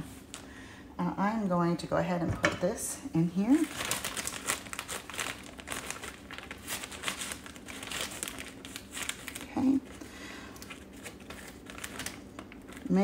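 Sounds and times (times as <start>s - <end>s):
plastic bag crinkling: 3.4s - 13.0s.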